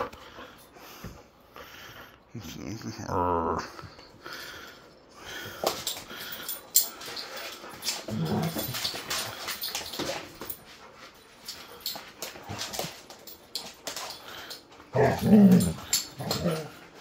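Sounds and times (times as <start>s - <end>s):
dogs scuffling: 5.3s - 17.0s
dogs growling and whining: 6.7s - 9.6s, 14.8s - 17.0s.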